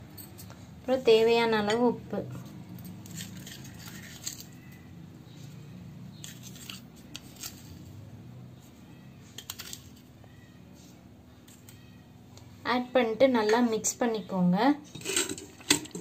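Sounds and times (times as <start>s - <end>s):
kitchen utensils clinking: 14.9s - 16.0s.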